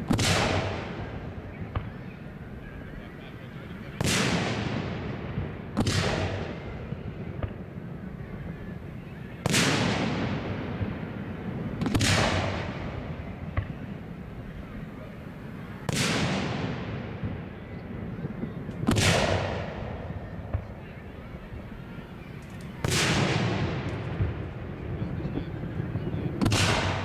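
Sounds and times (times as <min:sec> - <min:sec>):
firework booms with echo: 0:00.0 - 0:02.0, 0:04.0 - 0:07.9, 0:09.4 - 0:14.0, 0:15.8 - 0:20.8, 0:22.8 - 0:27.0.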